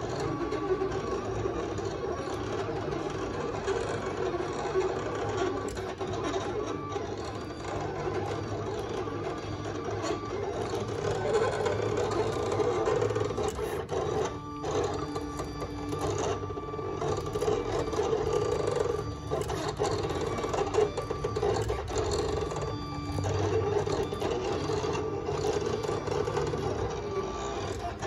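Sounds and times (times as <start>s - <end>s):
cutting plotter motor whir: 0.0s - 28.0s.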